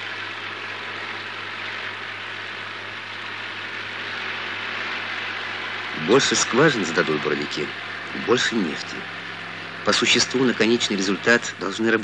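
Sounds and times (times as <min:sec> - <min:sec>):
low hum: 0:00.0 - 0:12.0
train wheels rumbling on rails: 0:03.4 - 0:12.0.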